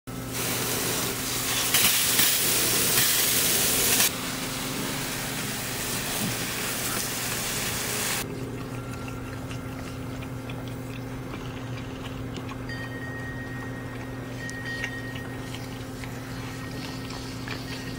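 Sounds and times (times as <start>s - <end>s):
hose nozzle spraying water: 0.3s - 4.2s
steady low hum: 4.1s - 17.9s.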